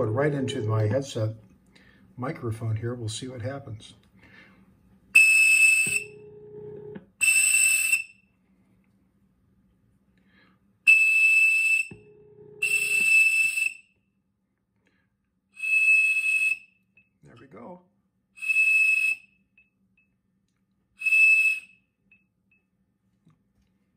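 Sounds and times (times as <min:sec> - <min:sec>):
lower steady tone: 0:00.0 - 0:01.2, 0:05.9 - 0:07.0, 0:11.9 - 0:13.0
toy whistle blasts: 0:05.2 - 0:06.2, 0:07.2 - 0:08.2, 0:10.9 - 0:13.9, 0:15.6 - 0:16.7, 0:18.4 - 0:19.3, 0:21.0 - 0:21.8.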